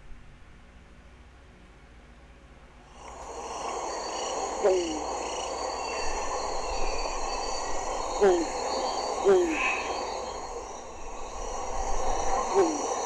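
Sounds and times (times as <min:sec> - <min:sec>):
high insect-like tones: 0:02.9 - 0:13.0.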